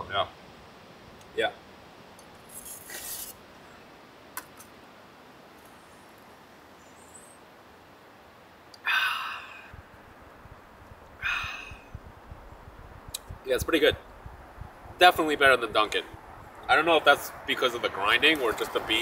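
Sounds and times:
brief rustle: 2.3 - 3.4.

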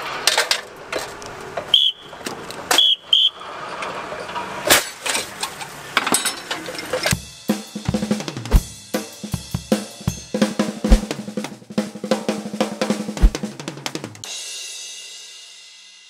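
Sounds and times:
upbeat drum-driven music: 7.2 - 15.7.

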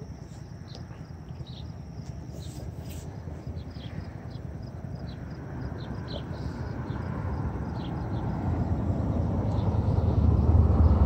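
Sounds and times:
car engine and tyre noise: 0.0 - 11.0
bird chirps: 0.3 - 7.1.

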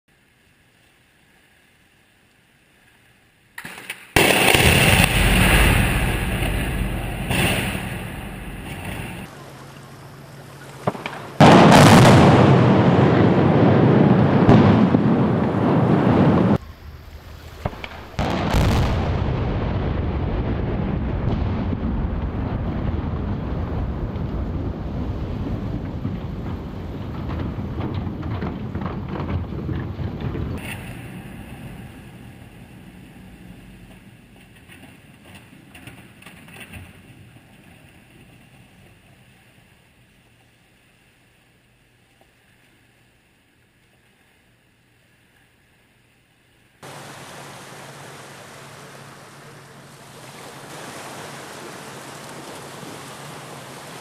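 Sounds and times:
loud explosive blast: 4.2 - 9.3, 10.9 - 16.6, 17.6 - 33.9.

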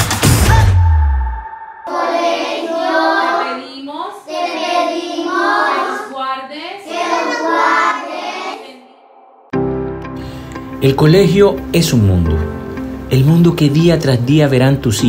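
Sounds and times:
children singing in unison: 1.4 - 3.7, 4.3 - 6.1, 6.8 - 9.5.

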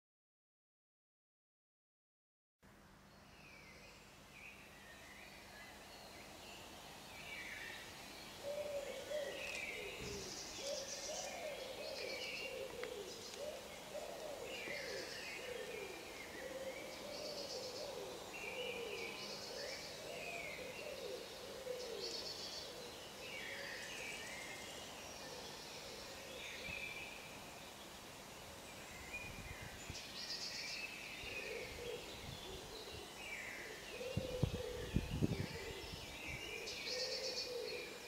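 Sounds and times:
birds chirping and trilling: 3.1 - 38.0
wavering cooing call: 8.4 - 23.9, 36.5 - 38.0.

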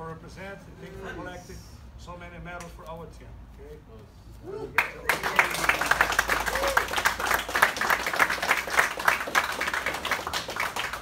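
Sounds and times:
people applauding: 4.7 - 11.0.

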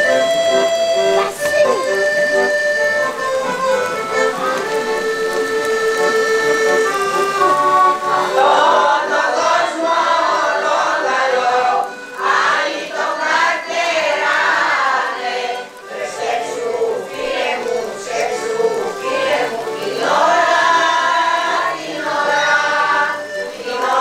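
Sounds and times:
accordion melody: 0.0 - 24.0
choir singing: 7.6 - 24.0.

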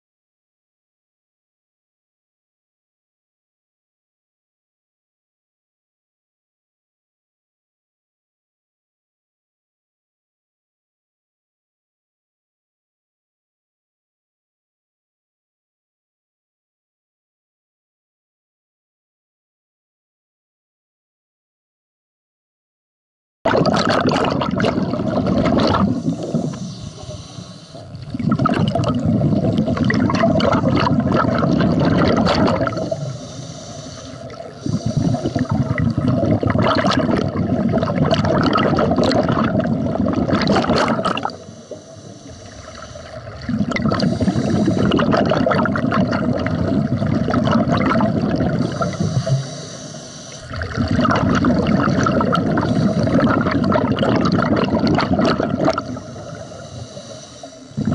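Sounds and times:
diver exhaling bubbles: 23.5 - 57.9
regulator inhalation: 24.8 - 30.8, 31.7 - 36.4, 40.9 - 45.3, 48.0 - 50.9, 52.4 - 53.5, 55.6 - 57.9.

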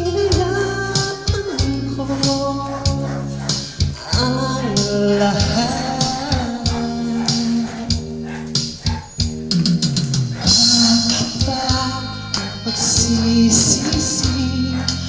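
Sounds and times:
person singing a ballad: 0.0 - 8.0, 10.4 - 15.0
backing track guitar and beat: 0.0 - 15.0.

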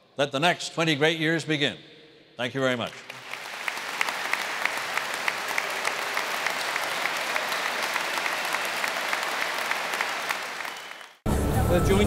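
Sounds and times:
crowd applauding: 2.9 - 11.3.

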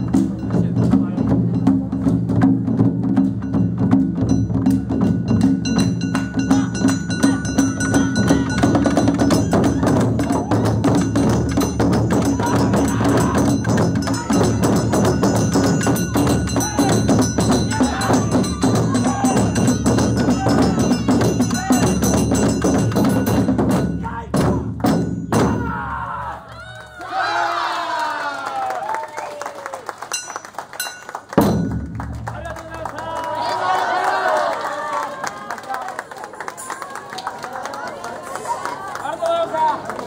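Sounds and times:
taiko drums played fast: 0.0 - 26.1, 31.4 - 33.2.

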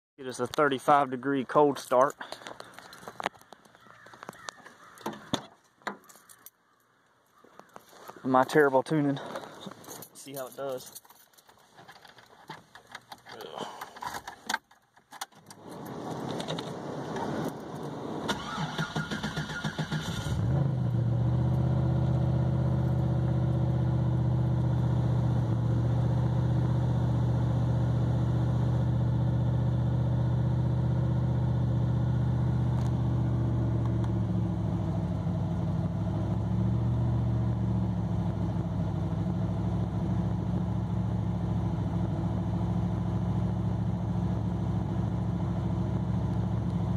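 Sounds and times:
car engine idling: 16.7 - 46.9
starter motor cranking: 18.3 - 20.4.

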